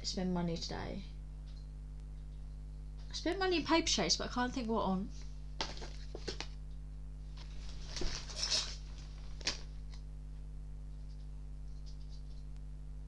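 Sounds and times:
steady low hum: 0.0 - 13.0
rustling of shopping items: 7.4 - 9.7.

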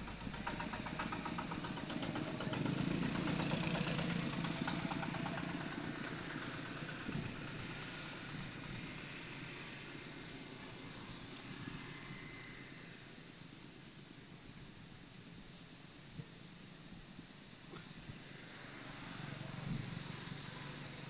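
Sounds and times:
small engine running: 0.0 - 13.0, 17.7 - 21.0.

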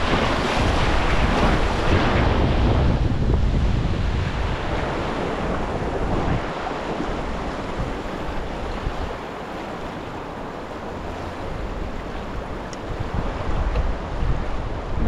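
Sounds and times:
river water rushing: 0.0 - 15.0
wind rumbling on microphone: 0.0 - 15.0.

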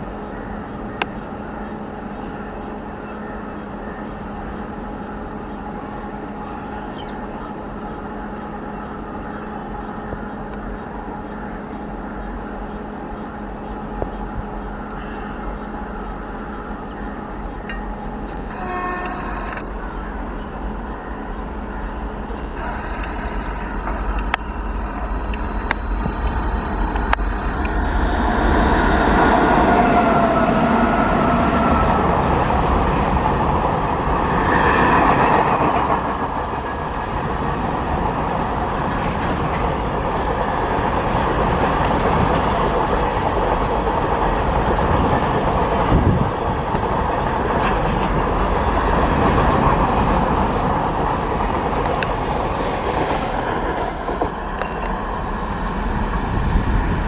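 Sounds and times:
freight train wheels rumbling: 0.0 - 57.0
brief squealing tone: 18.5 - 20.0, 22.5 - 28.7.

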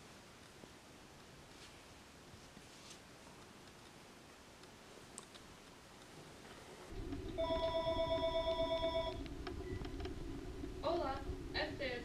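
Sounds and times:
mobile phone ringtone: 7.4 - 9.2.

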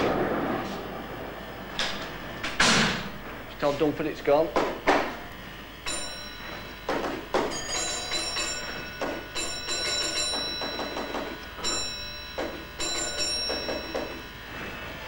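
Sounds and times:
telephone bell ringing: 5.8 - 15.0.

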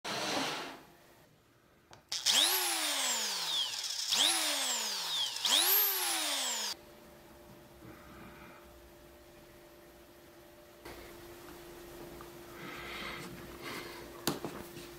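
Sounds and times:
electric drill whining: 2.1 - 6.8.

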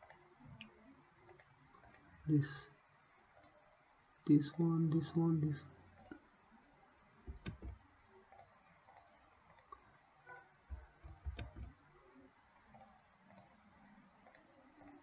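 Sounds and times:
faint mouse clicks: 0.0 - 2.1, 3.3 - 3.6, 7.3 - 11.8, 12.7 - 13.6, 14.2 - 15.0.

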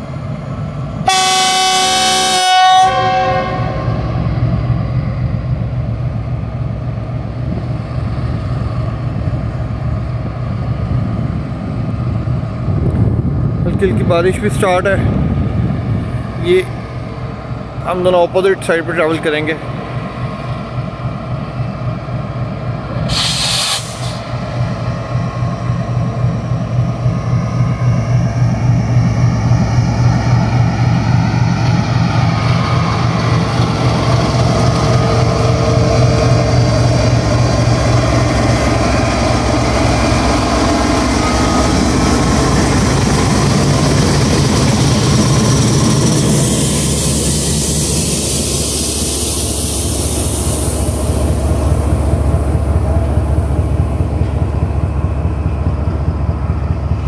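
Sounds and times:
diesel locomotive engine drone: 0.0 - 57.0
brief hiss: 23.1 - 24.3.

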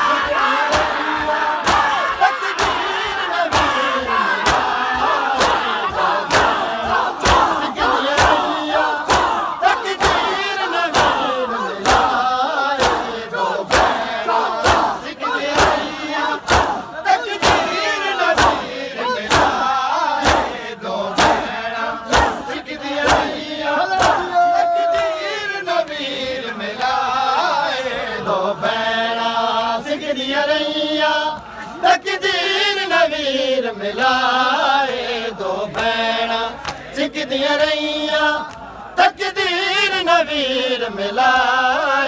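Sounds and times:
men shouting: 0.0 - 12.2, 22.1 - 25.2
crowd chanting: 0.0 - 42.0
chest-beating slaps: 1.6 - 1.9, 6.3 - 6.6, 7.2 - 7.6, 8.2 - 9.4, 10.0 - 10.3, 12.8 - 13.1, 15.6 - 16.8, 19.3 - 19.6, 20.2 - 20.6, 21.2 - 21.5, 22.1 - 23.4, 24.0 - 24.3.

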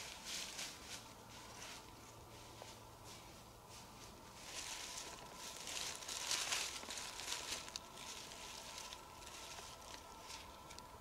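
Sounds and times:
dry leaves rustling and crackling: 0.0 - 11.0.

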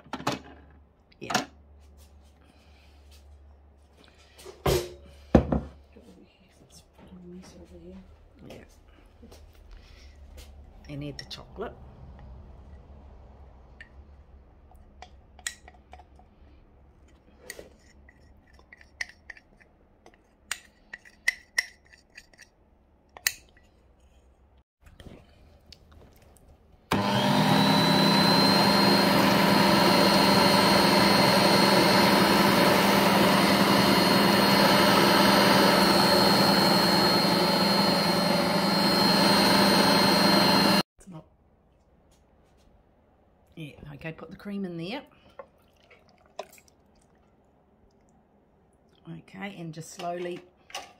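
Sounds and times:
electric stand mixer running: 26.9 - 40.8.

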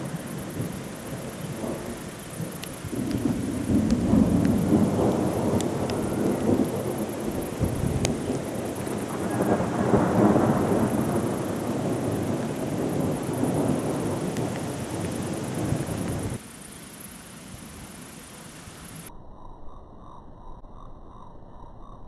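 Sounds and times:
rolling thunder: 0.0 - 16.4
sharp ticks: 2.6 - 6.5.

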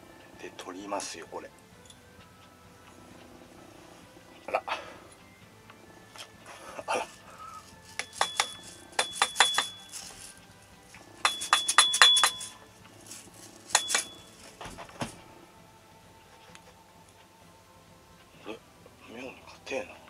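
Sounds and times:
metallic clinking and rattling: 7.0 - 15.2.

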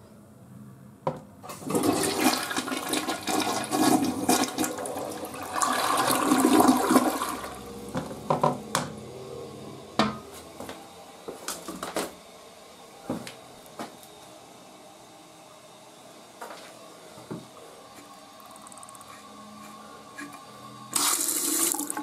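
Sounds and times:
toilet flushing: 1.4 - 9.1, 20.9 - 22.0.

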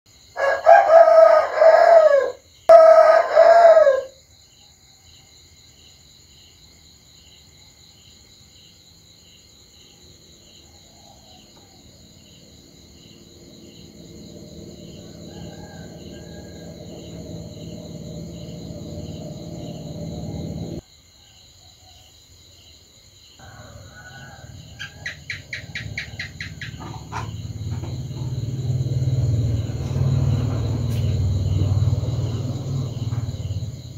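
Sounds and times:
low rumble: 12.9 - 20.8, 25.4 - 33.9.

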